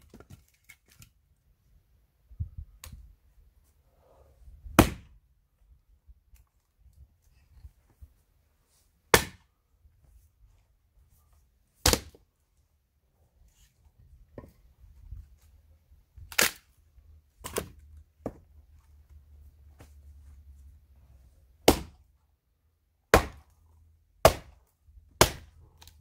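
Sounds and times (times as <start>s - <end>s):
axe splitting logs: 4.8s - 5.2s, 9.1s - 9.5s, 11.8s - 12.2s, 17.4s - 18.5s, 21.6s - 22.1s, 23.1s - 23.6s, 24.2s - 26.0s.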